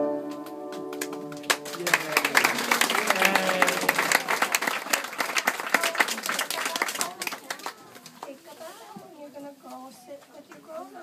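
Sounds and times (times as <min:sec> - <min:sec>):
audience applauding: 0:00.3 - 0:08.2
voices: 0:01.7 - 0:11.0.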